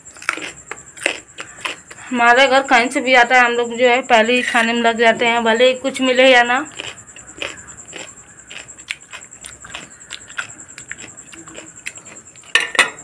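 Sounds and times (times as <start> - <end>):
chewing crunchy fruit: 0.0 - 2.1, 6.6 - 12.6.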